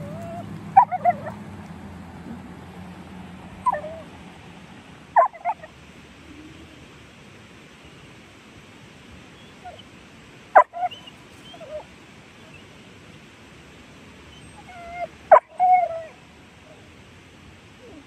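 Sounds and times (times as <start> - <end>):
animal whining: 0.0 - 1.4, 3.6 - 4.1
animal yelps: 0.0 - 1.4, 3.6 - 4.1, 5.2 - 5.7, 10.6 - 11.9, 14.3 - 16.1.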